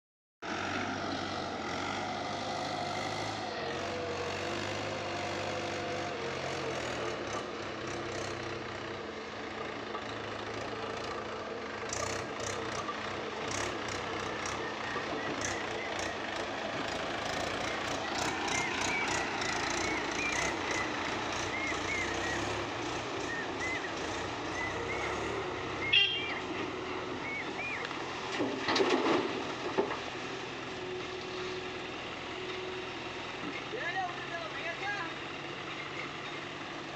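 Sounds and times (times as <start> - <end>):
tractor diesel engine: 0.4 - 36.9
excavator running under load: 0.5 - 36.9.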